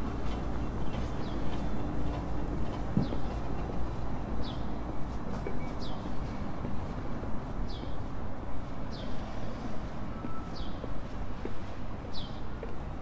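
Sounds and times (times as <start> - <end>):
footsteps on pavement: 0.0 - 13.0.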